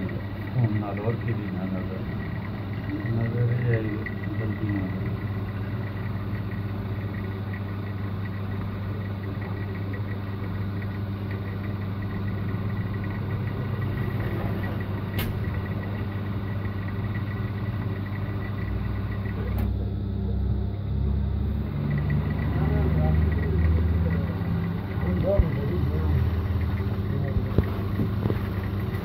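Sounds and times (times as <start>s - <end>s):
overlock machine motor hum: 0.0s - 29.0s.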